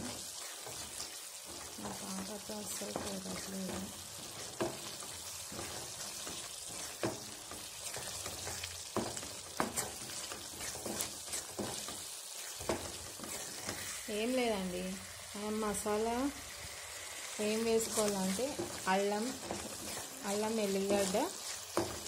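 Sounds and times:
gravy sizzling in a pan: 0.0s - 22.0s
spatula knocking on a pan: 7.0s - 12.0s.

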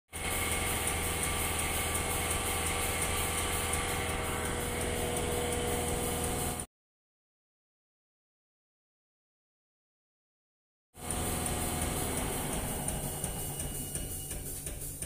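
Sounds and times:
truck diesel engine idling: 0.1s - 6.6s, 11.0s - 15.0s.

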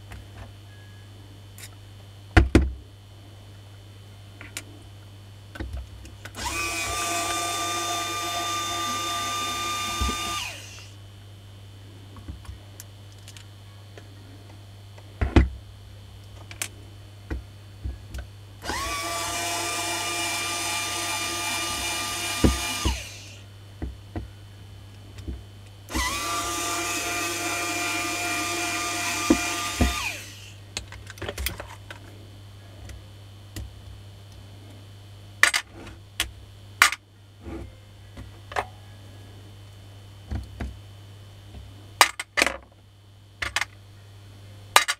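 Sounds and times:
electric drill whining: 6.4s - 11.0s, 18.6s - 23.4s, 25.9s - 30.6s.

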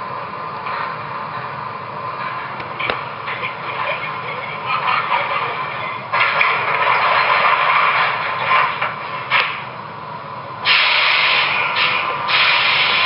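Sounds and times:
subway train sounds from small speaker: 0.0s - 13.0s
air brake hiss: 10.6s - 13.0s.

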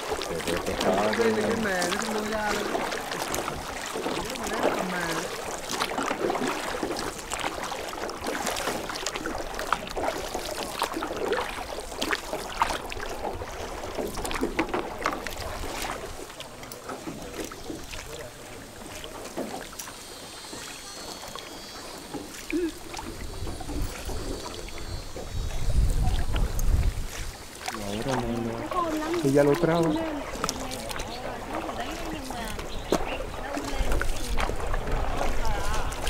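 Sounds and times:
oars splashing water: 0.0s - 36.0s
oar knocks on boat: 12.1s - 16.0s.

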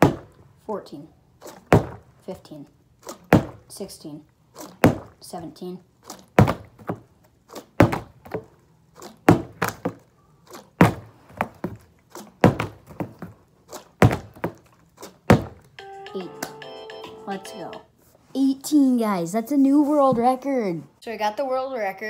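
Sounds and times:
plastic bottle landing on floor: 15.3s - 15.6s.

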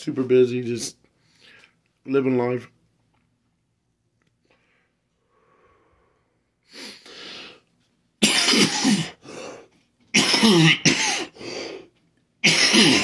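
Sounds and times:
man coughing: 8.2s - 9.2s, 10.1s - 11.4s, 12.4s - 13.0s.

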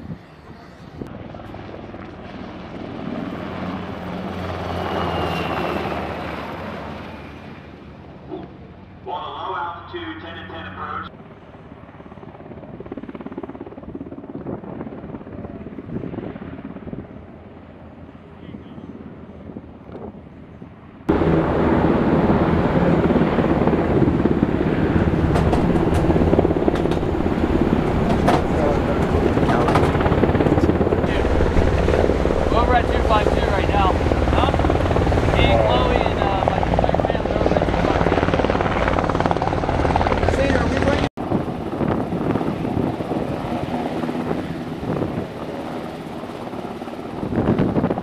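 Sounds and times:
helicopter rotor chop: 0.0s - 18.1s, 21.1s - 48.0s
turbine noise: 21.1s - 48.0s.

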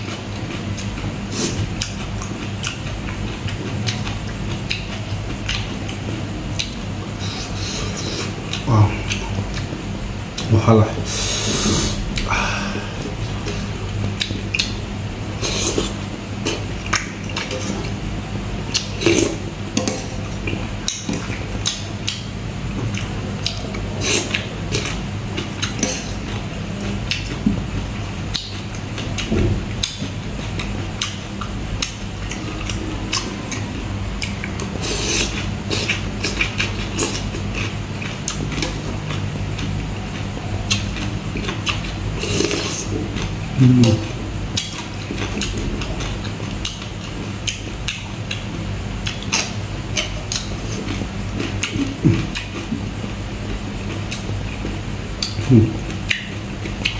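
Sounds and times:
wet chewing and mouth noises: 0.0s - 10.5s, 11.6s - 18.0s, 18.6s - 56.9s
steady low hum: 0.0s - 56.9s.

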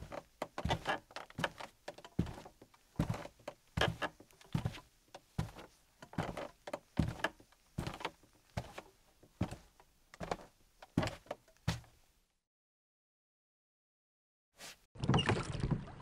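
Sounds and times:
footsteps on wooden floorboards: 0.0s - 12.0s.

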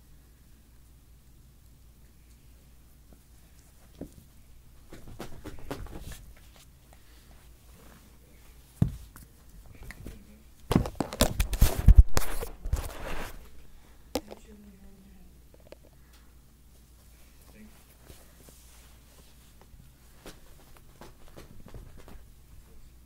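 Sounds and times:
rustling against microphone: 3.4s - 13.6s.

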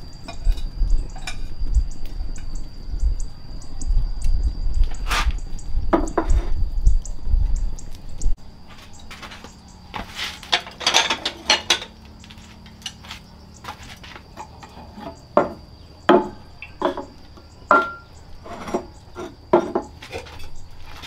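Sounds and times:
dishes and utensils clinking: 10.5s - 12.0s, 17.7s - 18.9s.

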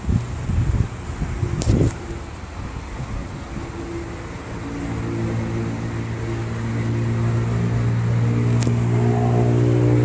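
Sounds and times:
engine humming: 0.0s - 10.0s.

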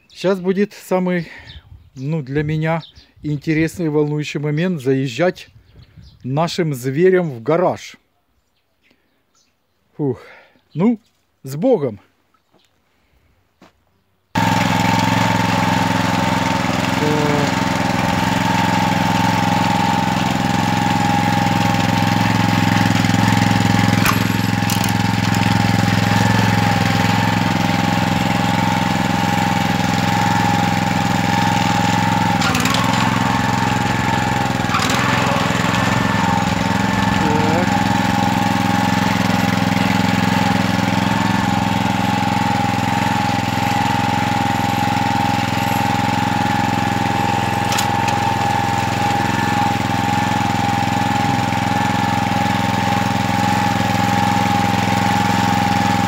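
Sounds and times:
tractor engine running: 14.4s - 56.0s.

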